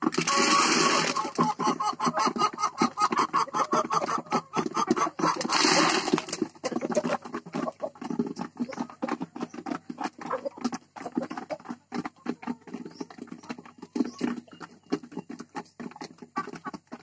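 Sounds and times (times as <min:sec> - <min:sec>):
hens pecking on plastic feeder: 0:00.0 - 0:17.0.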